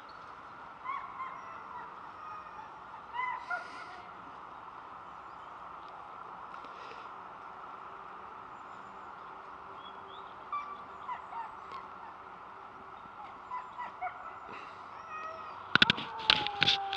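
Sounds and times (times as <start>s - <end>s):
dogs yelping and whining: 0.8s - 4.1s, 10.5s - 12.3s, 13.0s - 16.9s.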